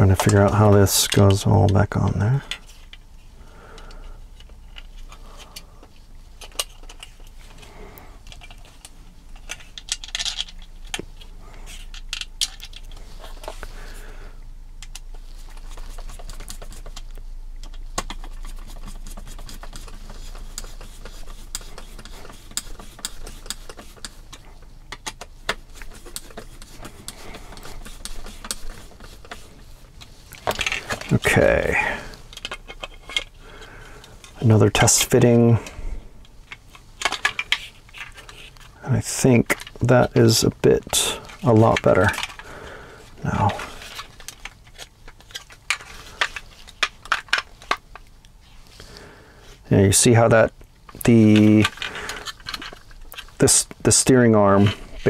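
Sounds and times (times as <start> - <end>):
plastic parts knocking together: 9.4 - 11.1, 30.4 - 31.2, 36.5 - 38.3, 43.4 - 48.0, 50.9 - 53.3
screwdriver turning screws into plastic: 16.0 - 29.5, 32.3 - 33.3, 50.9 - 53.4.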